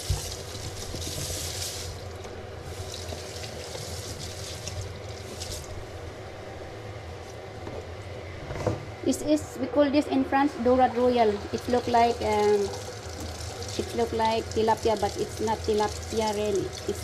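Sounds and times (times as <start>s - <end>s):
water splashing into sink: 11.6s - 17.0s.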